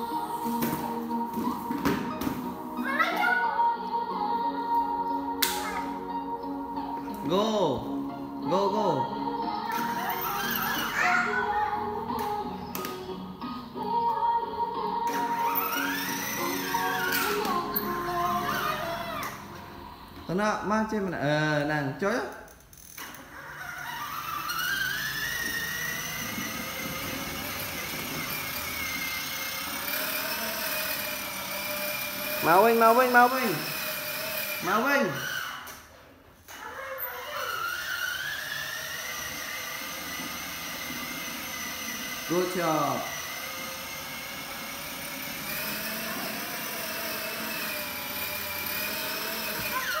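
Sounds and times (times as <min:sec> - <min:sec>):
electric toy motor whining: 0:08.6 - 0:13.0, 0:15.0 - 0:20.4, 0:22.8 - 0:35.9, 0:36.5 - 0:50.0.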